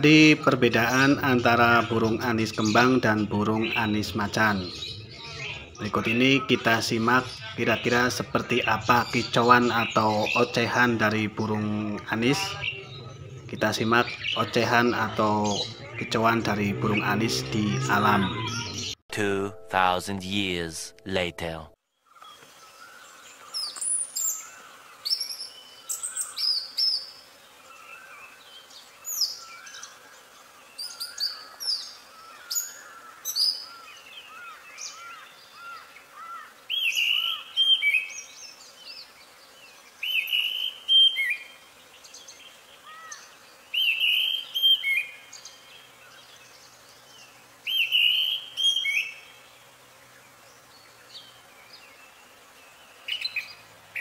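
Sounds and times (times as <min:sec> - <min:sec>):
thrush singing whistled phrases: 0:40.0 - 0:41.4.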